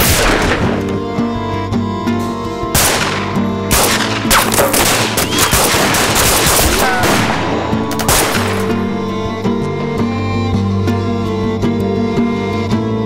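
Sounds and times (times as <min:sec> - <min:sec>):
rapid pistol shots: 0:00.0 - 0:00.9, 0:02.8 - 0:08.8
orchestral score with bowed strings: 0:00.0 - 0:13.0.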